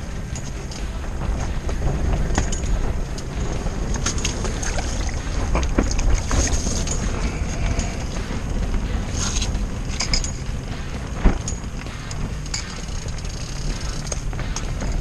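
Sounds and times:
wind buffeting shelter: 0.0 - 15.0
clicks and rustles handling fish: 3.9 - 10.4.

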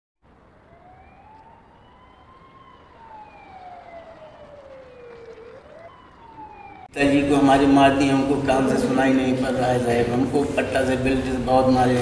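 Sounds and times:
faint street noise: 0.2 - 12.0
police siren wailing: 0.3 - 8.1.

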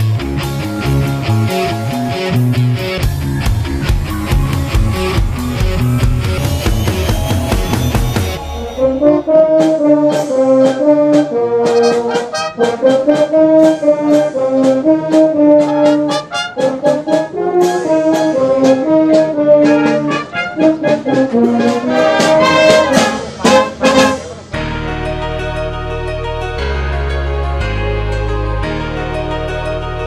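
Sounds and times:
wind band playing: 7.0 - 26.0.

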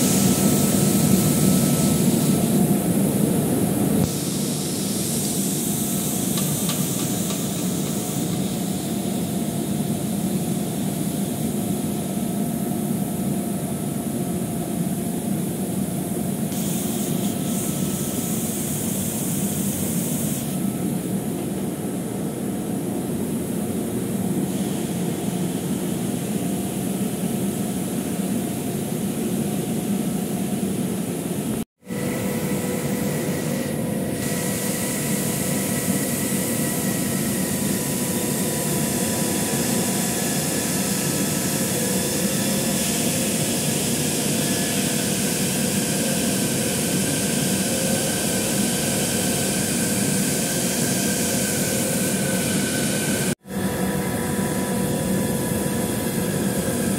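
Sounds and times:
machinery drone: 31.8 - 56.9
steady whining tones: 51.5 - 56.9.

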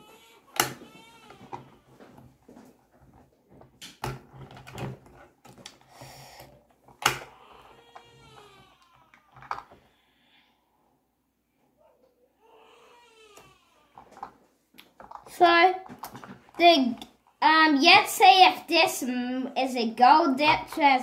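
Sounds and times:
plastic toy parts clicking: 9.1 - 9.7.

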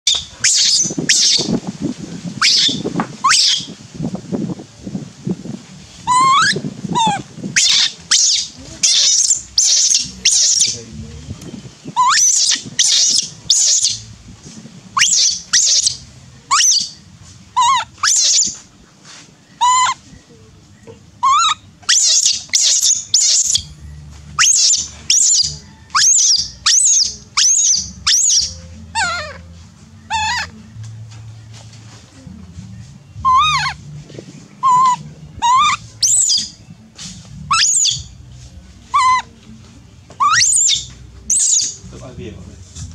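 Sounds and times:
baby monkey squealing: 0.0 - 1.6, 2.4 - 3.8, 6.0 - 10.8, 12.0 - 14.0, 15.0 - 17.0, 17.6 - 18.6, 19.6 - 20.0, 21.2 - 23.7, 24.4 - 29.4, 30.1 - 30.5, 33.2 - 33.8, 34.6 - 36.6, 37.5 - 38.1, 38.9 - 39.3, 40.2 - 41.8.

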